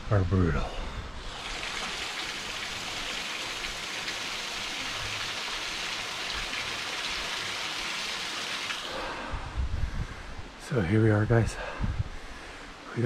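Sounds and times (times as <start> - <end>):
water trickling into rock pool: 1.3 - 9.0.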